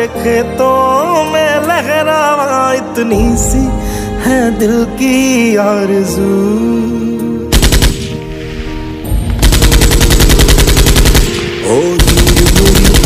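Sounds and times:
background song: 0:00.0 - 0:13.0
machine-gun fire: 0:07.5 - 0:08.2, 0:09.4 - 0:13.0.

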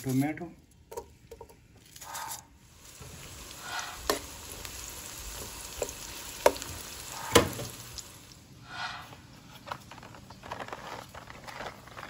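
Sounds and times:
onion sizzling in hot oil: 0:02.6 - 0:08.8.

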